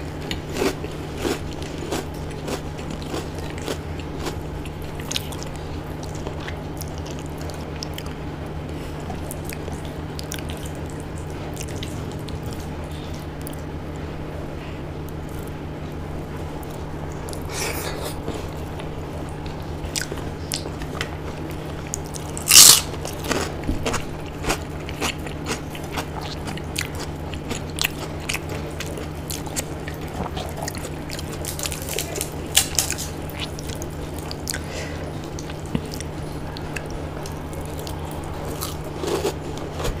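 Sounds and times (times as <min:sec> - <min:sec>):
low hum: 0:00.0 - 0:40.0
chewing and mouth smacks: 0:00.2 - 0:08.2, 0:09.0 - 0:13.7, 0:18.6 - 0:40.0
crunchy bites: 0:21.9 - 0:34.6.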